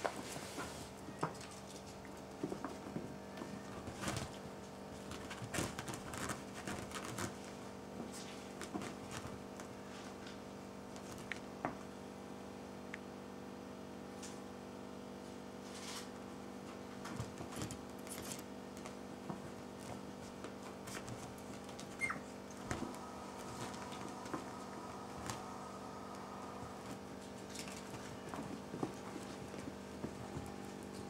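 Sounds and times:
steady low hum: 0.0 - 31.0
paws pattering on bedspread: 3.6 - 10.2, 17.1 - 31.0
high squeak: 22.0 - 22.3.

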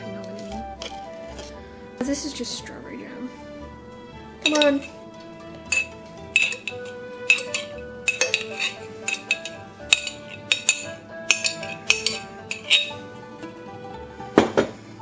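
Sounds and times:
background music: 0.0 - 15.0
knife clinking on ceramic plate: 4.4 - 5.0, 5.6 - 13.0.

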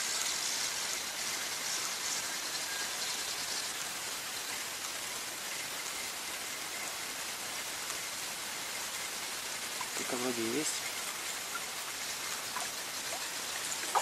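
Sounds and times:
steady hiss: 0.0 - 14.0.

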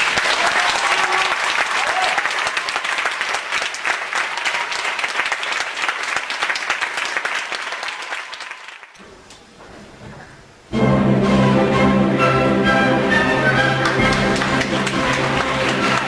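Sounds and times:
theatre audience applauding: 0.0 - 9.0, 13.1 - 16.0
orchestra playing: 10.7 - 16.0.

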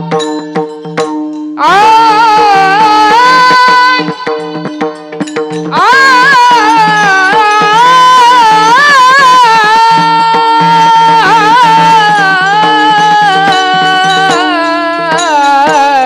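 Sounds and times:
hand cymbals striking: 0.0 - 9.0, 9.6 - 16.0
man singing long ornamented note: 1.6 - 4.3.

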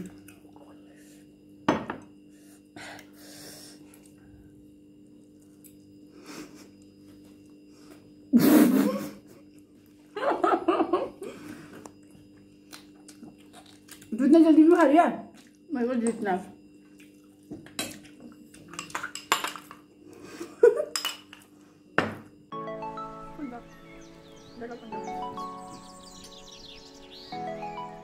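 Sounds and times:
low room hum: 0.0 - 28.0
knock on table: 1.7 - 2.0.

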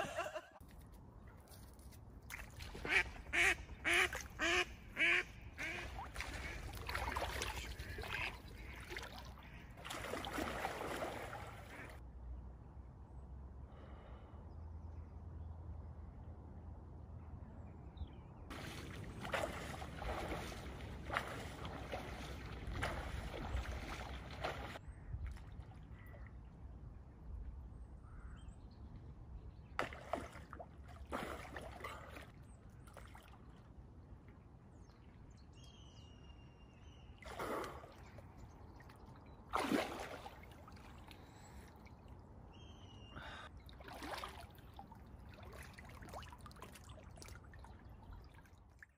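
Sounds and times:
water splashing from swimming: 5.8 - 12.0, 18.5 - 25.7, 29.8 - 33.4, 37.2 - 42.0, 43.6 - 48.9
bird calling: 42.5 - 43.5.

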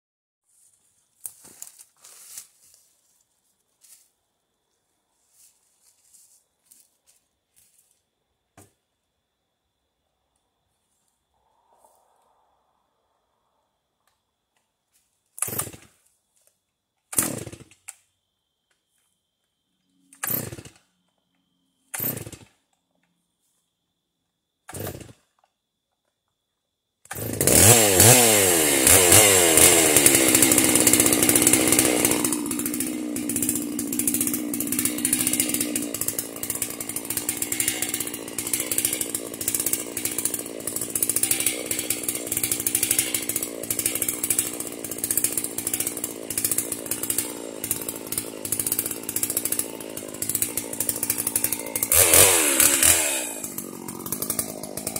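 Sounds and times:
chainsaw engine running: 20.2 - 20.8, 21.9 - 22.5, 27.1 - 54.9.

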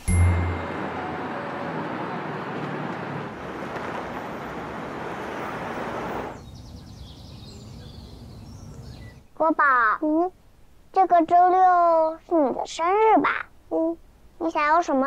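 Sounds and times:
city traffic noise: 0.0 - 9.1.

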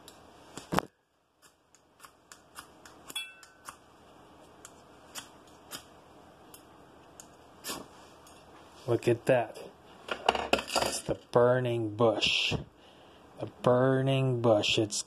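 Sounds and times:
low steady hiss: 0.0 - 15.0.

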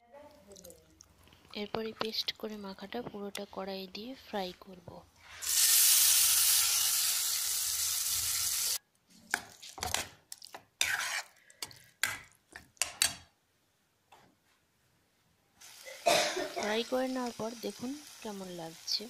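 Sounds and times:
paste sizzling in hot oil: 5.3 - 8.8, 15.6 - 19.0
metal spatula scraping a pan: 10.8 - 12.2.

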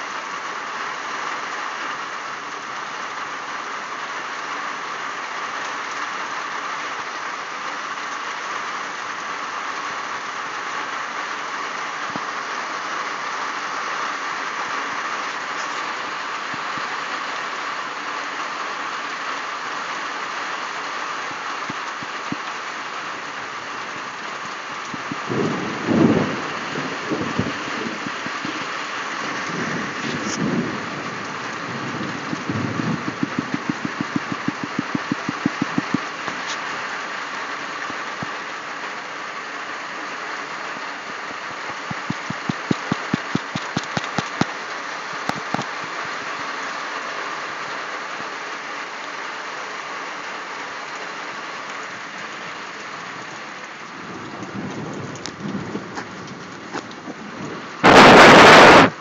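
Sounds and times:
heavy rain falling: 0.0 - 59.0
low rumbles: 24.8 - 36.2
rapid even tapping: 33.1 - 36.2, 41.9 - 44.6.

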